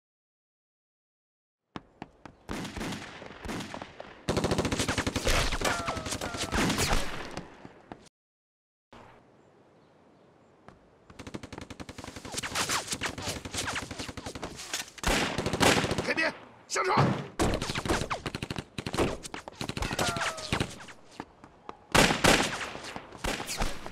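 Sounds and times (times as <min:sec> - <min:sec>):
rapid gunfire: 0:02.5 - 0:07.2, 0:11.1 - 0:16.3, 0:17.4 - 0:20.9, 0:22.0 - 0:23.9
gunshots: 0:02.5 - 0:07.5, 0:11.2 - 0:21.0, 0:21.9 - 0:23.9.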